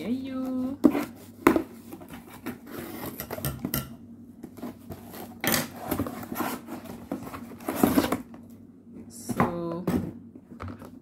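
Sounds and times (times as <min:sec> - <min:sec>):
cardboard tearing: 0:04.8 - 0:08.3.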